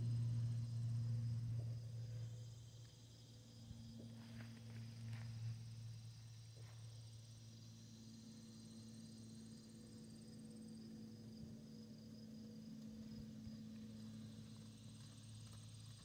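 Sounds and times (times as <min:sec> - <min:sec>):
insects buzzing and chirping: 0:00.0 - 0:16.0
low steady hum: 0:00.0 - 0:16.0.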